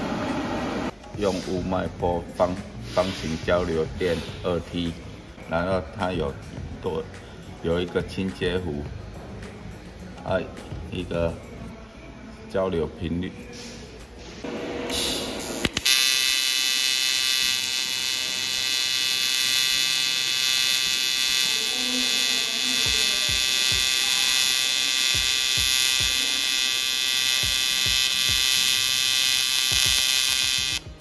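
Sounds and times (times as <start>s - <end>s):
welding arc buzz: 14.5s - 31.0s
arc strike clicks: 14.9s - 21.5s.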